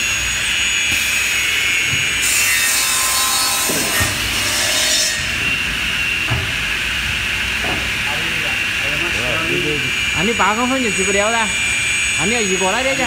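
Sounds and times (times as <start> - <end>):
saw blade cutting wood: 0.0 - 5.6
saw whining: 0.0 - 13.0.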